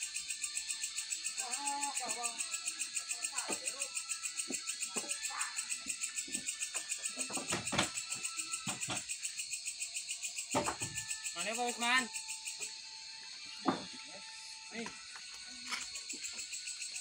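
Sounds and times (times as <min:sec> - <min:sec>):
night insects chirping: 0:00.0 - 0:17.0
wooden knocks of timber stacking: 0:07.2 - 0:08.0, 0:10.6 - 0:11.0, 0:13.6 - 0:14.0.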